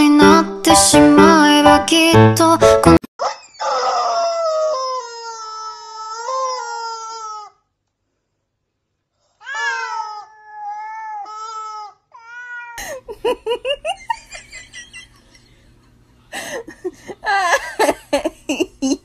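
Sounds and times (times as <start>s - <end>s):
cat meowing: 9.4s - 12.8s.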